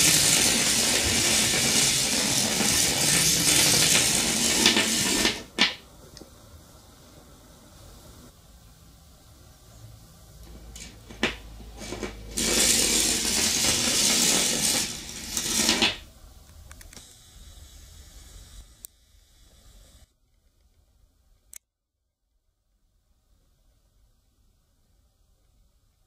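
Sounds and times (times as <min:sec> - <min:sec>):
battery rattling through copper coil: 0:00.0 - 0:05.8, 0:10.7 - 0:16.1.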